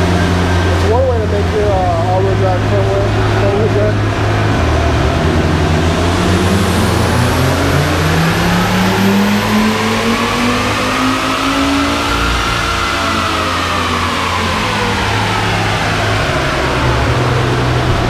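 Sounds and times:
car engine revving at full throttle: 0.0s - 18.0s.

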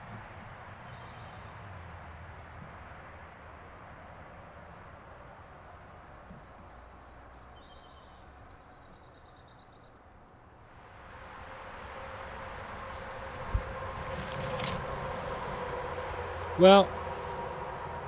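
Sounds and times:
faint high bird chirps: 0.4s - 1.5s, 5.4s - 10.0s
breeze hissing: 10.7s - 18.0s.

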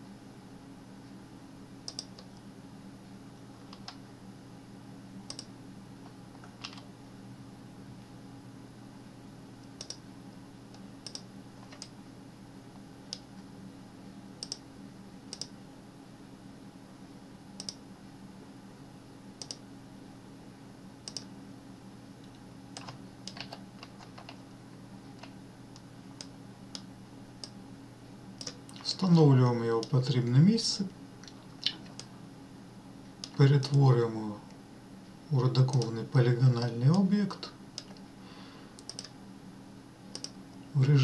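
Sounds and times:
low steady hum: 0.0s - 41.0s
mouse and keyboard clicks: 5.3s - 5.5s, 6.4s - 6.9s, 9.8s - 10.0s, 11.0s - 11.9s, 22.8s - 24.4s, 38.8s - 39.1s.

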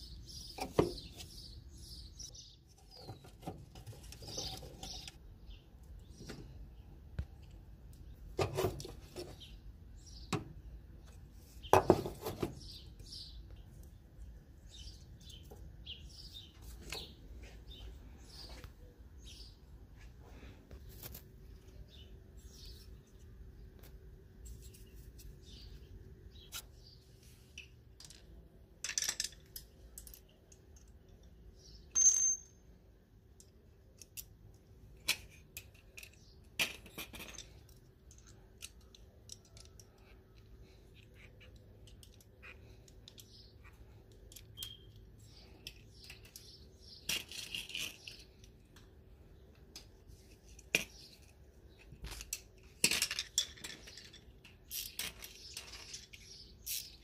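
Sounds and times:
metal tools clinking: 31.9s - 32.7s.

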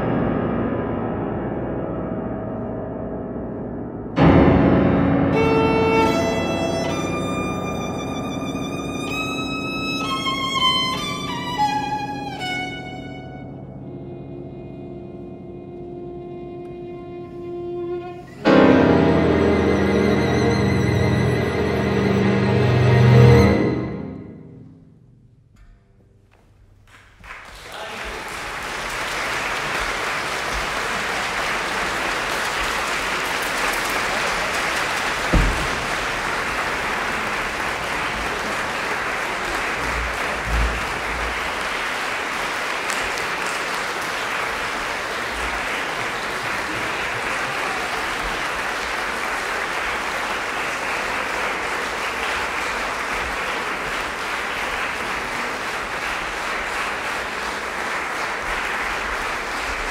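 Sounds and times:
audience applauding: 5.4s - 13.5s, 26.8s - 59.9s.

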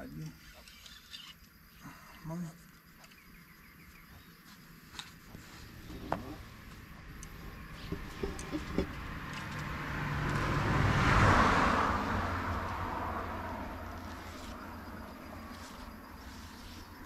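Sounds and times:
car passing over bridge: 6.3s - 16.2s.

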